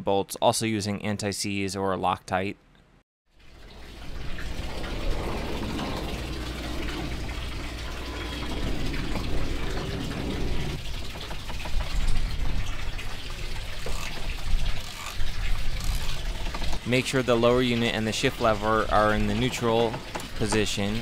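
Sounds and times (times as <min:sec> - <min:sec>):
water lapping against boat: 0:03.6 - 0:16.8.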